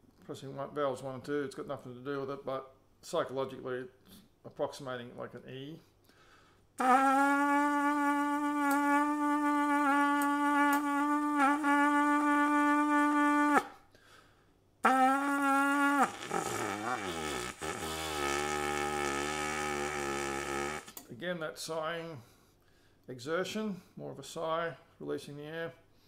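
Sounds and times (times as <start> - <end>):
trumpet mouthpiece long tone: 6.8 - 13.8, 14.8 - 21.0
low wavering buzz: 15.2 - 20.9.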